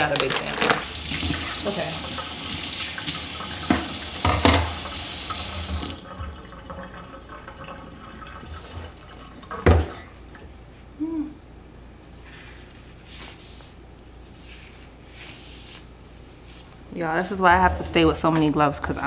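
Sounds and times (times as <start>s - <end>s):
faucet running into sink: 0.8s - 10.0s.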